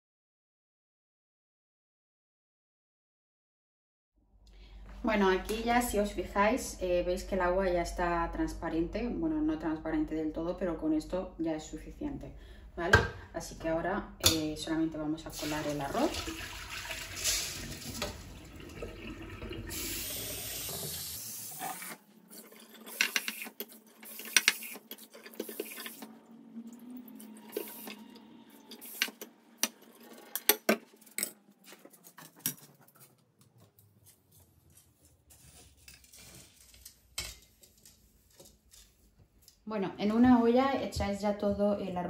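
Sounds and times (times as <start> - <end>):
water pouring into strainer: 15.4 - 21.9.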